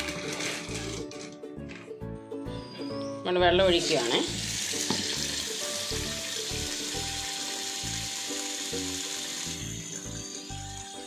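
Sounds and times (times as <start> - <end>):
tap water pouring into pot: 3.8 - 10.8.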